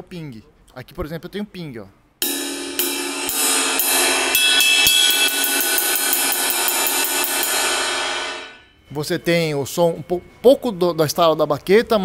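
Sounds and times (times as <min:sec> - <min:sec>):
ride cymbal struck with drumstick: 0:02.2 - 0:08.7.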